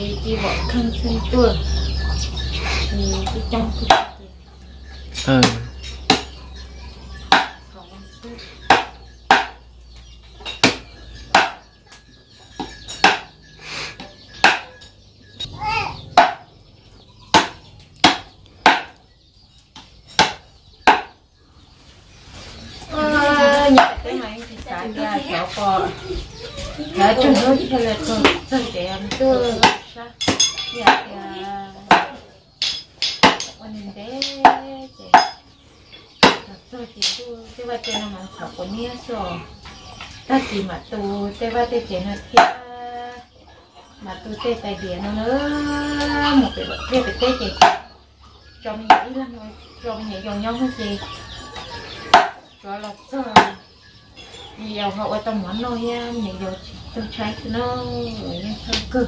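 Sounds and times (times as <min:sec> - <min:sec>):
cleaver chopping on wooden board: 0:05.4 - 0:06.3, 0:07.3 - 0:07.6, 0:08.7 - 0:09.6, 0:10.6 - 0:11.6, 0:13.0 - 0:13.3, 0:14.4 - 0:14.7, 0:16.2 - 0:16.5, 0:17.3 - 0:19.0, 0:20.2 - 0:21.1.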